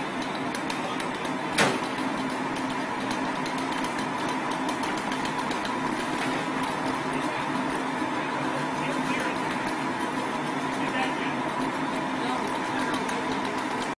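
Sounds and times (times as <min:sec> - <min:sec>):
engine humming: 0:00.0 - 0:13.9.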